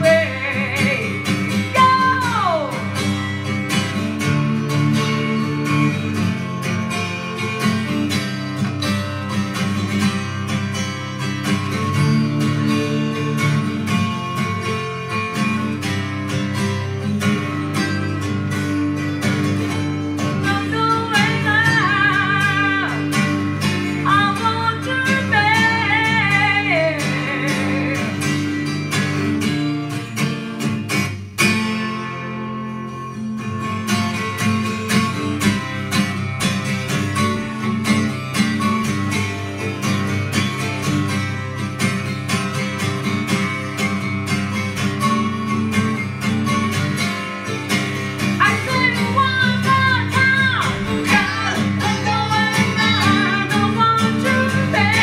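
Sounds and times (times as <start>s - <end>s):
woman singing: 0.0s - 3.1s, 20.2s - 28.7s, 48.2s - 55.0s
acoustic guitar strumming: 0.0s - 55.0s.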